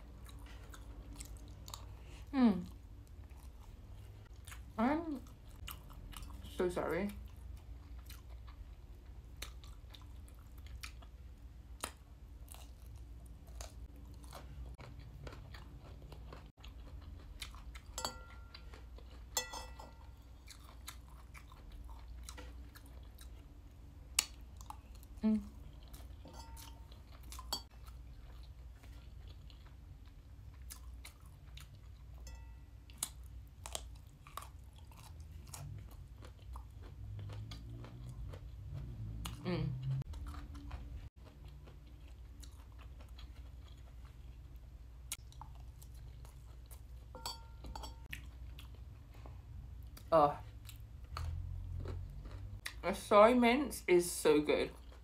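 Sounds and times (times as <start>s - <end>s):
close-up chewing: 0.0s - 52.8s
metal spoon clinking ceramic bowl: 18.0s - 18.6s, 19.4s - 20.2s, 26.2s - 26.9s, 32.2s - 32.7s, 47.1s - 48.1s.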